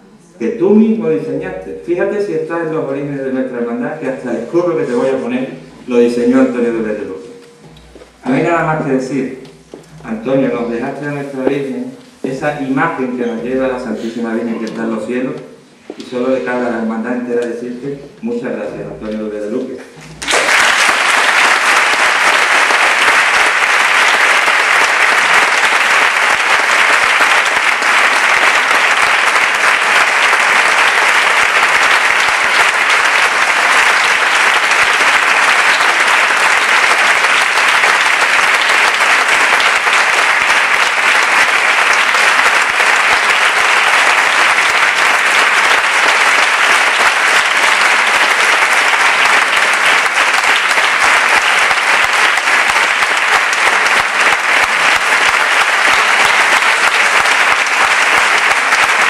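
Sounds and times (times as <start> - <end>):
audience applauding: 20.1 - 59.0.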